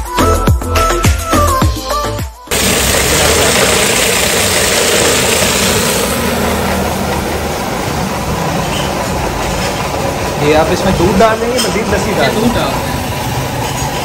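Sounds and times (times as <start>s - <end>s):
milk pouring: 2.5s - 8.0s
churning machine motor running: 2.5s - 14.0s.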